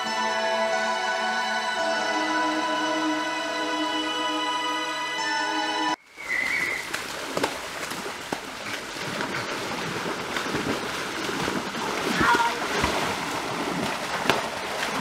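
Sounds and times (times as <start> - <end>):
background music: 0.0 - 6.0
water splashing and sloshing: 6.1 - 15.0.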